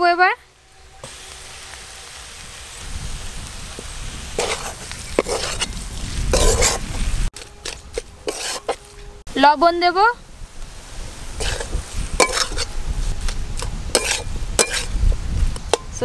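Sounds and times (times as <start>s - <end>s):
filling sizzling in a wok: 0.5s - 8.9s, 10.3s - 16.0s
metal spatula scraping a pan: 4.3s - 9.2s, 11.4s - 15.0s.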